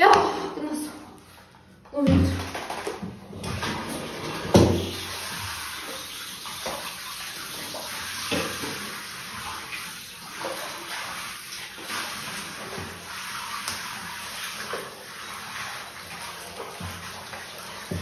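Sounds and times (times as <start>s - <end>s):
small water splashes: 2.0s - 18.0s
water pouring into a bathtub: 2.0s - 18.0s.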